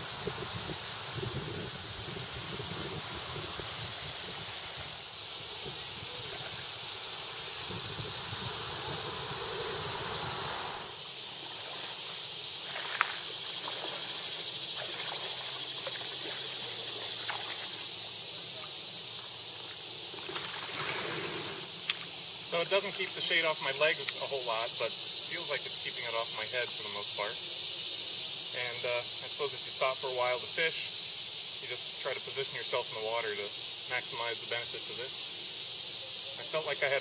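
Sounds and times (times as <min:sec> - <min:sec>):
insect chorus: 0:00.0 - 0:37.0
faint sharp clicks: 0:21.8 - 0:22.1.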